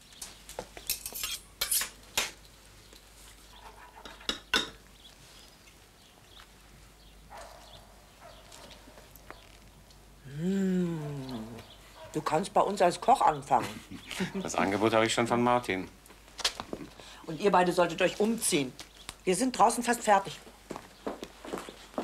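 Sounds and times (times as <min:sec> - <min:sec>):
cutlery clinking against dish: 0:00.9 - 0:02.4, 0:04.0 - 0:04.8.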